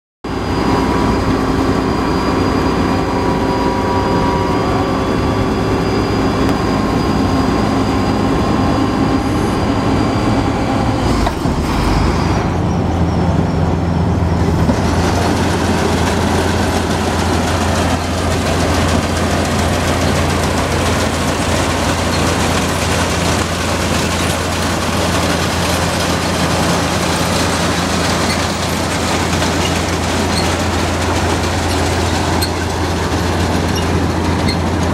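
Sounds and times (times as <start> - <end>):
combine harvester running: 0.3 - 34.9
harsh mechanical clatter: 14.2 - 34.9.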